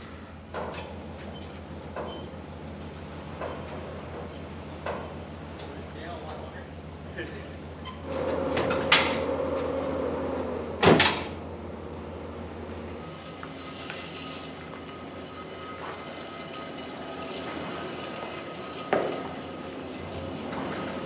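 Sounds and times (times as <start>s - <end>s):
low engine hum: 1.1s - 13.6s.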